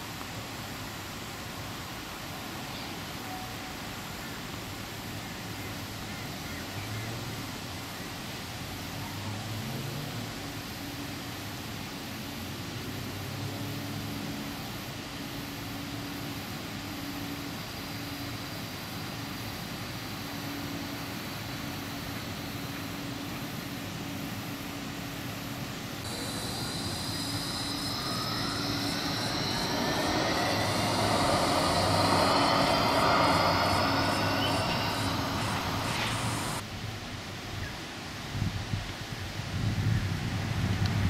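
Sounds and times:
tram humming: 26.0 - 36.6
electric traction drive whining: 26.1 - 36.6.

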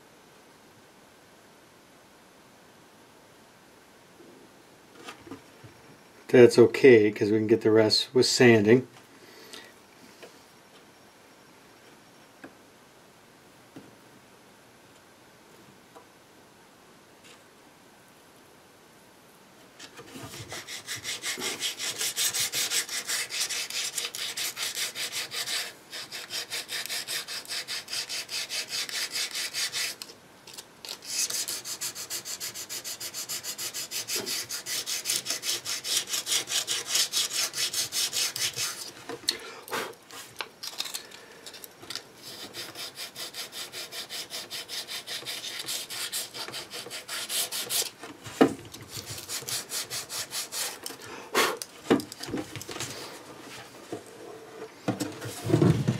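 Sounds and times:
hand sanding back and forth: 20.0 - 30.1, 30.9 - 39.0, 42.2 - 48.0, 48.8 - 50.9.

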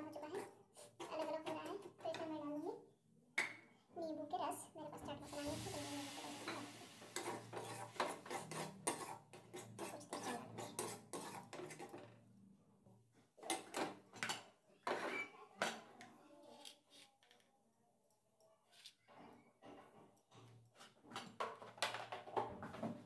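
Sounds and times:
metal spatula scraping a pan: 0.1 - 1.6, 5.2 - 12.1.

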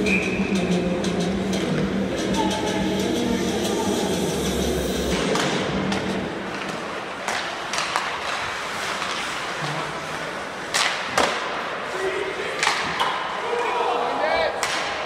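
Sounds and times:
skates scraping ice: 5.0 - 13.4
hockey sticks and puck clacking: 5.0 - 13.7, 14.4 - 15.0.

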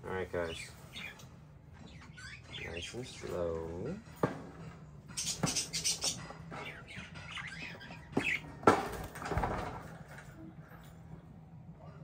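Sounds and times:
budgerigars chirping: 0.1 - 3.7, 5.1 - 8.6.

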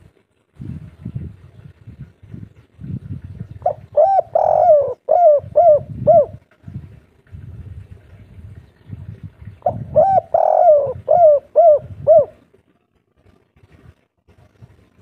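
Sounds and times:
dove cooing: 3.5 - 7.0, 9.6 - 12.6.

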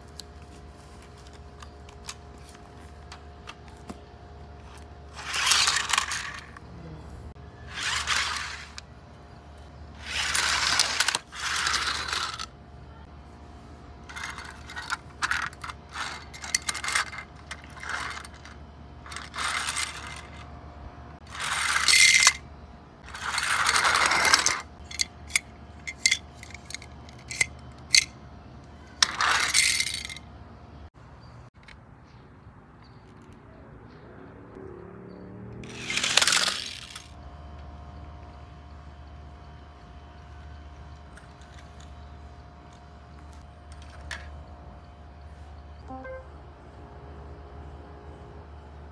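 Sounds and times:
plastic toy cars clicking and clattering: 0.0 - 6.7, 7.7 - 8.9, 10.0 - 12.6, 14.0 - 20.5, 21.2 - 22.4, 23.0 - 28.2, 28.9 - 30.3, 35.6 - 37.2, 41.0 - 44.4
toy cars rolling on concrete: 0.0 - 20.6, 21.2 - 30.3, 35.6 - 44.8.

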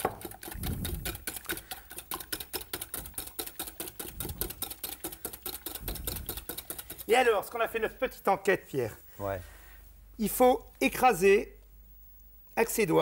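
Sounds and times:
fork beating eggs in glass bowl: 0.0 - 7.9.

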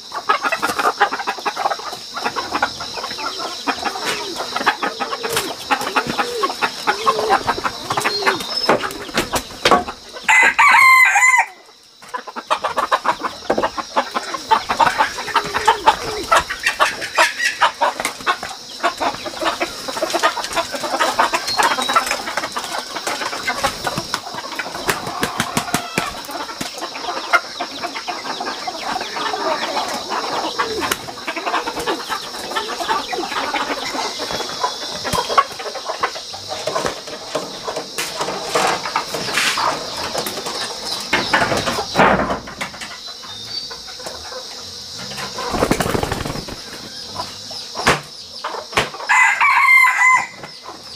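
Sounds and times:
chickens clucking: 0.0 - 50.9
chicken squawking: 2.2 - 9.1, 14.0 - 18.0
wings flapping: 3.9 - 9.6, 14.1 - 26.8, 45.3 - 46.9.

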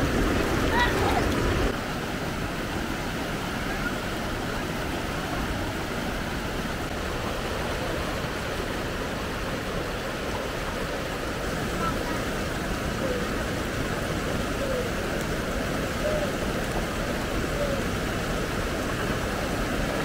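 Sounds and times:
river water rushing: 0.0 - 20.0.

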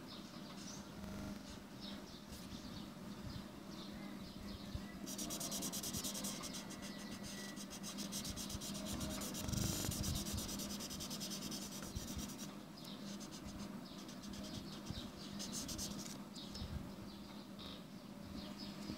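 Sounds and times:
marker scribbling on paper: 5.1 - 16.2.

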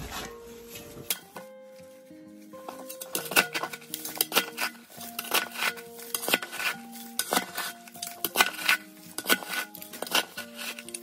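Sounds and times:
background melody: 0.0 - 11.0
shovel scraping gravel: 2.6 - 11.0.

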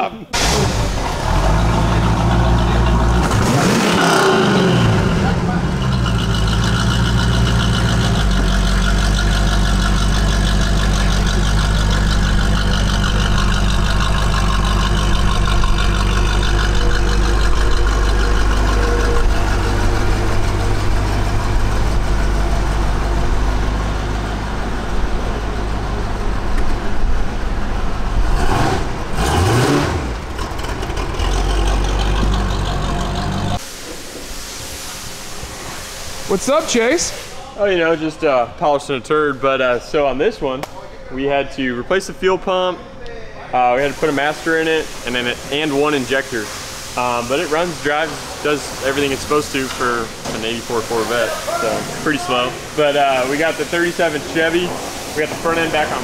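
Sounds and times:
car engine idling: 0.4 - 33.6.

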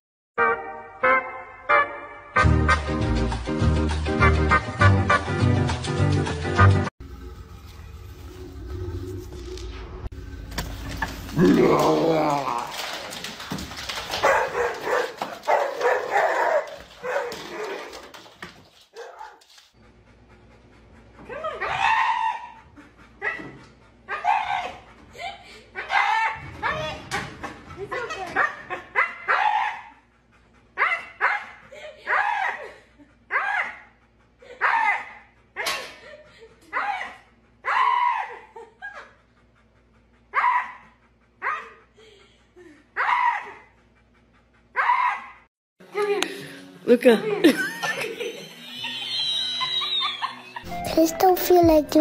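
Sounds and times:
husky howling: 11.3 - 13.3, 21.6 - 22.6.

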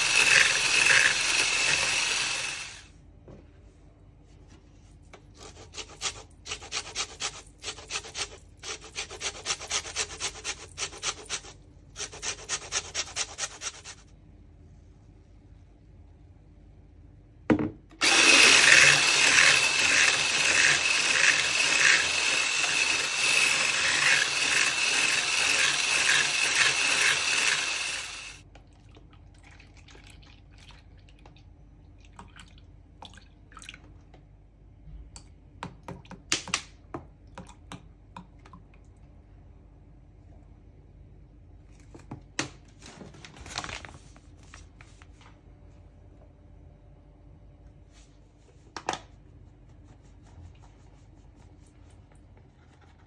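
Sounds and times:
electric mixer whining: 0.0 - 2.8, 18.0 - 28.4.

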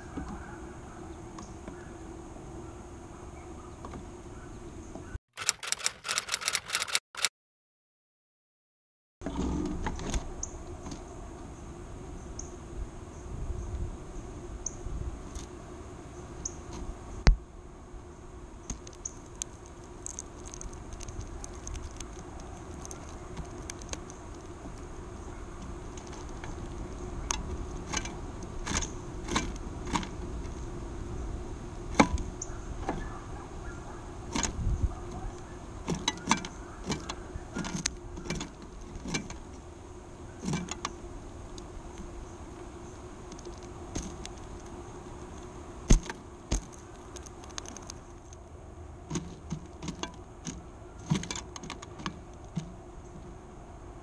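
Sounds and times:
steady low hum: 9.2 - 54.0
beaks pecking through seeds: 18.6 - 30.6, 40.4 - 48.5.

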